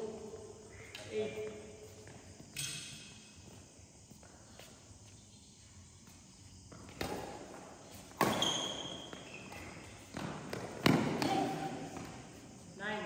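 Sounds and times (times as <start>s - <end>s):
shoes squeaking on court floor: 0.8s - 12.7s
rackets hitting shuttlecock: 6.8s - 12.3s.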